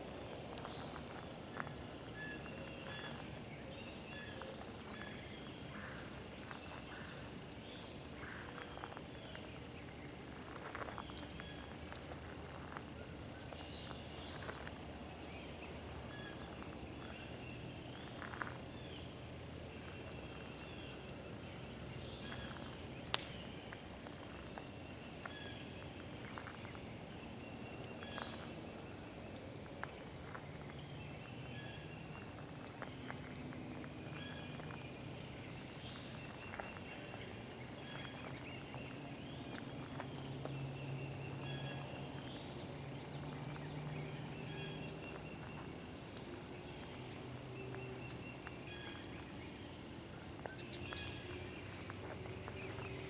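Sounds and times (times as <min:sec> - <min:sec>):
birds chirping: 0:00.0 - 0:53.0
campfire crackling and popping: 0:00.0 - 0:53.0.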